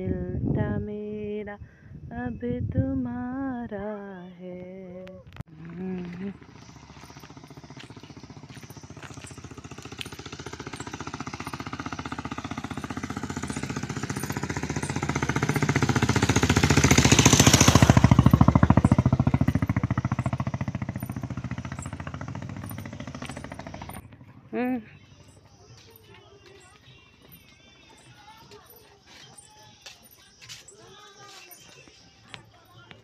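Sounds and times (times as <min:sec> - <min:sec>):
passing vehicle throbbing: 0:05.5 - 0:29.5.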